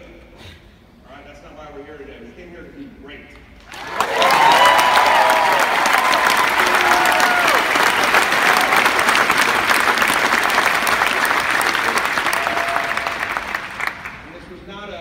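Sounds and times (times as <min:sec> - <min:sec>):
audience applauding: 0:03.7 - 0:14.3.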